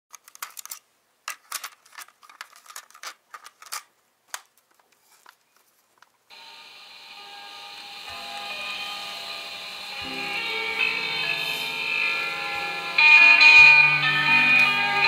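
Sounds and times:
crackling and crinkling clicks: 0.1s - 6.3s
steady hiss with faint tones: 0.1s - 15.0s.

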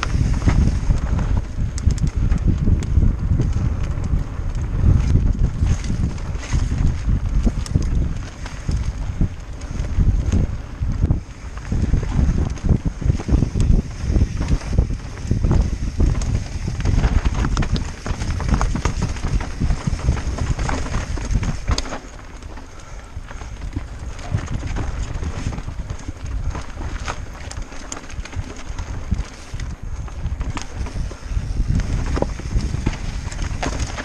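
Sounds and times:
bike chain and frame rattling: 0.0s - 34.0s
tyres rumbling over dirt: 0.0s - 34.0s
wind rushing over microphone: 0.0s - 34.0s.

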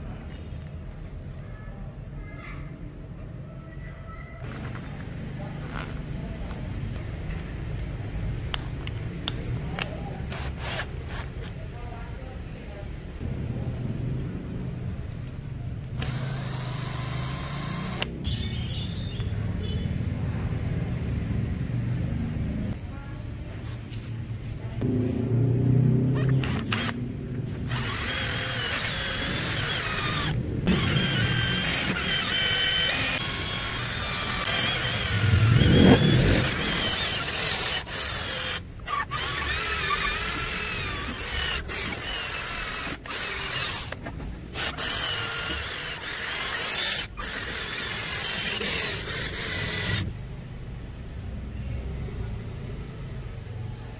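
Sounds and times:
cordless drill motor whine: 16.0s - 18.1s, 26.4s - 27.0s, 27.7s - 50.1s.

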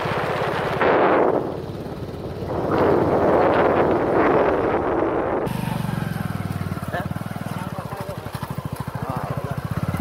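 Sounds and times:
wind buffeting microphone: 0.0s - 5.5s
motorcycle engine running: 0.0s - 10.0s.

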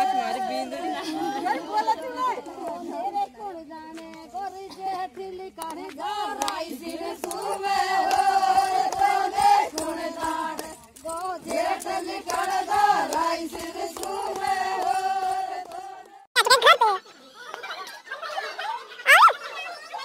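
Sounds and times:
women singing folk song: 0.0s - 16.3s.

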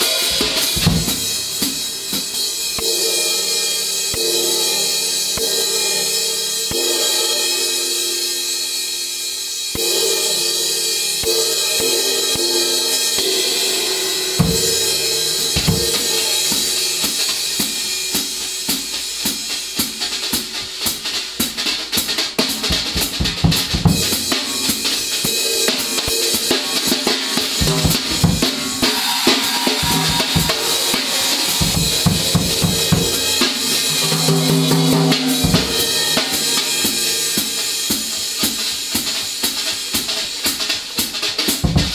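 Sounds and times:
bass drum and drum strokes: 0.0s - 3.0s, 14.0s - 41.9s
sizzling cymbal wash: 0.0s - 41.9s.

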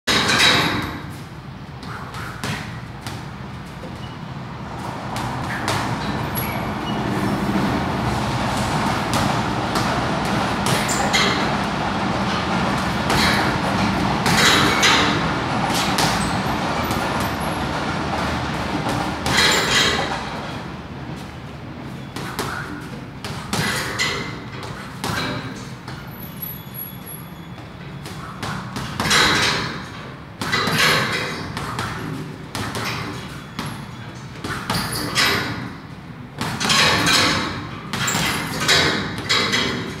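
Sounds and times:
gloves punching a bag: 1.9s - 3.4s, 28.0s - 29.8s.

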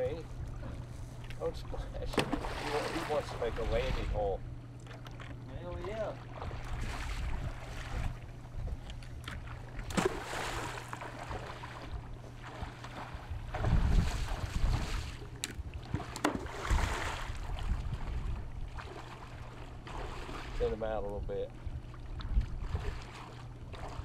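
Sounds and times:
water sloshing from wading: 0.0s - 24.0s
wind rumbling on microphone: 3.1s - 4.4s, 6.3s - 9.9s, 11.8s - 19.0s, 20.5s - 24.0s.

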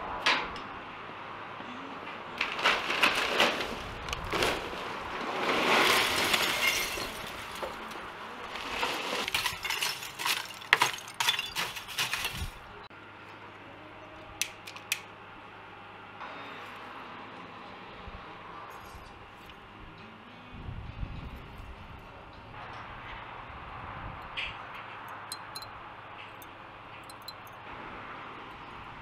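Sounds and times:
charcoal clinking and rattling: 2.4s - 12.8s, 25.1s - 27.6s
scraping: 2.4s - 12.8s.

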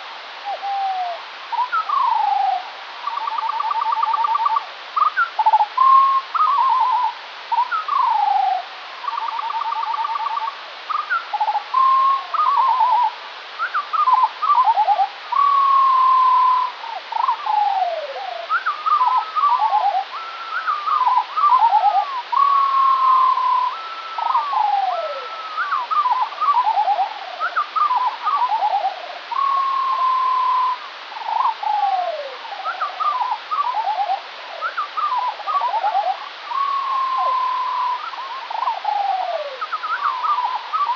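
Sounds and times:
slowed bird song whistles: 0.4s - 40.9s.

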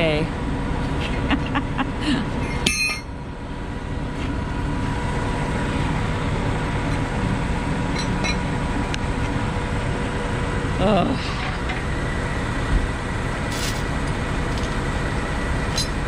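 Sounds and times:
truck engine running: 0.0s - 16.0s
tow chains clinking on metal: 13.5s - 13.9s, 15.7s - 16.0s.

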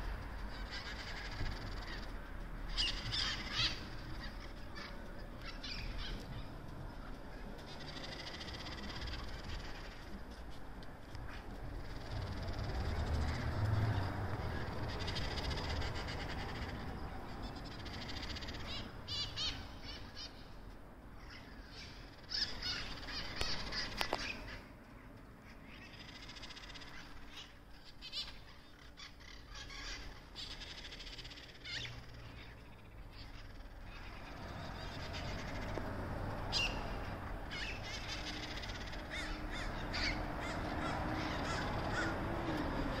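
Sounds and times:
parrots squawking: 2.7s - 6.5s, 21.2s - 24.6s, 25.7s - 35.7s, 36.5s - 42.9s.

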